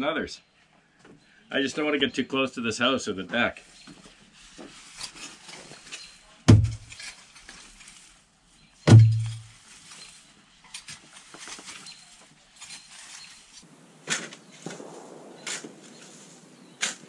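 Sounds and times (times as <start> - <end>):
hand tool scraping through soil: 3.6 - 14.5, 15.4 - 17.0
heavy thuds: 6.5 - 7.0, 8.9 - 9.6.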